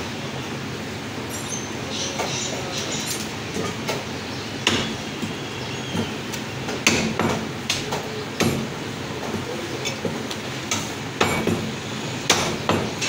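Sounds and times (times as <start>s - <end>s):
steady background noise: 0.0s - 13.0s
cleaver chopping on wooden block: 4.6s - 5.0s, 6.7s - 8.7s.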